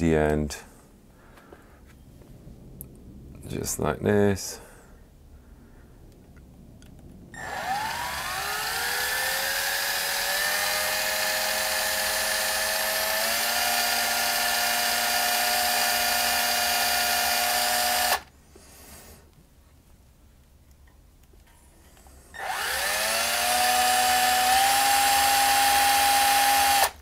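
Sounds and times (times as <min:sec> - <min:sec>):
electric drill motor spinning: 0:07.4 - 0:18.3, 0:22.3 - 0:27.0.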